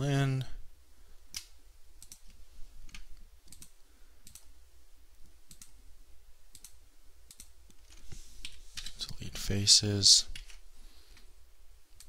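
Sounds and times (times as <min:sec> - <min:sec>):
computer mouse clicks: 0:01.3 - 0:04.5, 0:05.2 - 0:05.8, 0:06.5 - 0:09.0.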